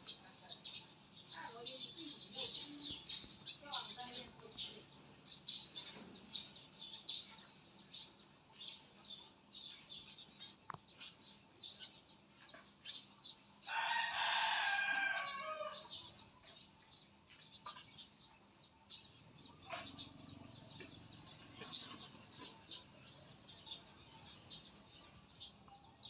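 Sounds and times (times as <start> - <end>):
faint high ticks and chirps: 0.0 - 13.2
rooster crowing: 13.7 - 16.0.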